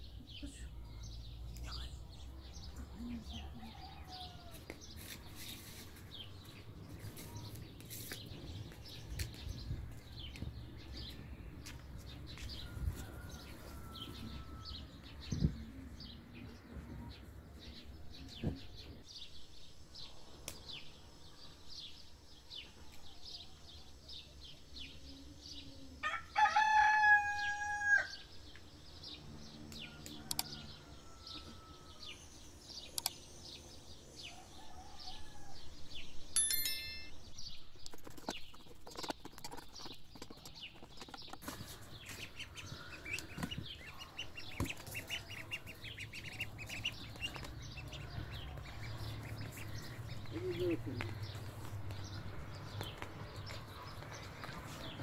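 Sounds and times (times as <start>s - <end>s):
small birds chirping: 0.0s - 26.0s, 28.1s - 55.0s
rooster crowing: 3.4s - 4.7s, 12.6s - 14.9s, 26.0s - 28.3s, 29.8s - 32.2s, 34.2s - 35.8s.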